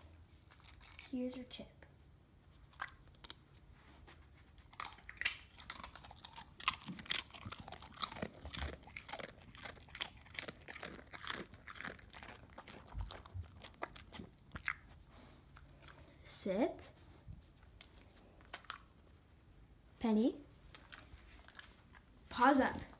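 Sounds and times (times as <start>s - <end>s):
dog crunching a chip: 0.4s - 1.6s, 2.5s - 3.7s, 4.6s - 16.1s, 17.6s - 19.0s, 20.7s - 22.2s.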